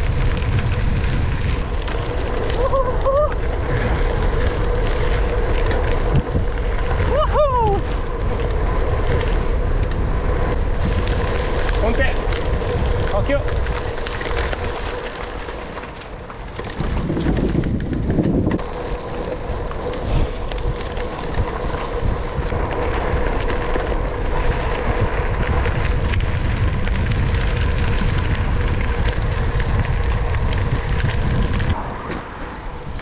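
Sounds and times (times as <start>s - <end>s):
tyres crunching on gravel: 0.0s - 33.0s
wind buffeting microphone: 0.0s - 33.0s
stones rattling and clicking: 8.3s - 26.2s.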